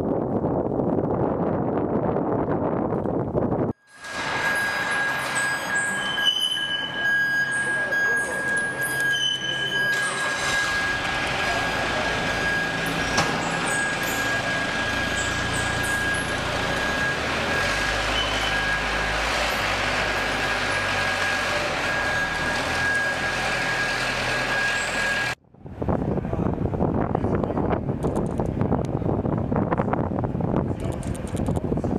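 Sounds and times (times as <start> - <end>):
tow tractor engine drone: 0.3 - 31.9
high-pitched whine: 3.8 - 25.4.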